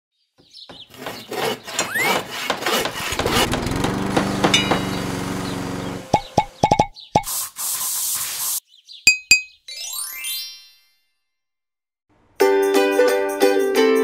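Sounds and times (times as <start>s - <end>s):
small motor humming: 3.1s - 6.2s
short ringing pops: 4.5s - 5.1s, 9.1s - 9.6s.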